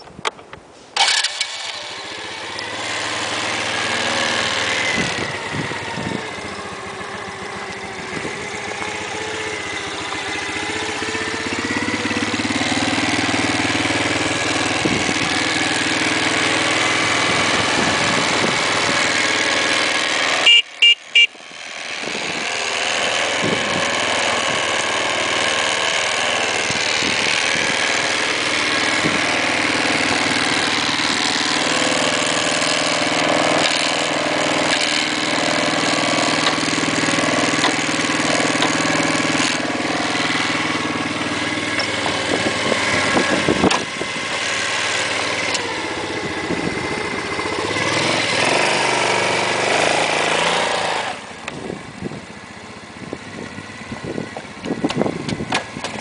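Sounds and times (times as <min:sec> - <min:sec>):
quad bike engine idling: 0:01.0 - 0:56.0
quad bike horn beeps: 0:20.2 - 0:22.6.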